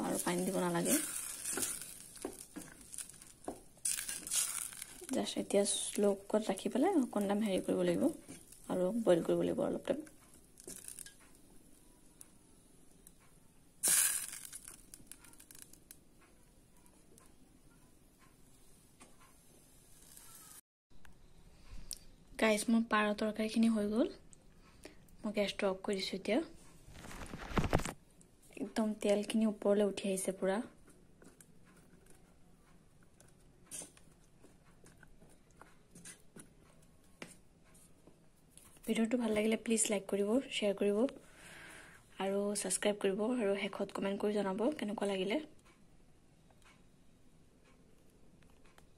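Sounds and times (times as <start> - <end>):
spoon scraping pot: 0.0 - 9.3
curry bubbling with pops: 0.0 - 11.8
low hiss: 0.0 - 22.4.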